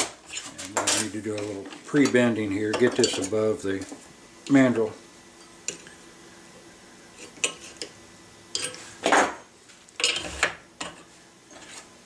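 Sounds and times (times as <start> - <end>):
metal tools clinking: 2.0 - 3.4.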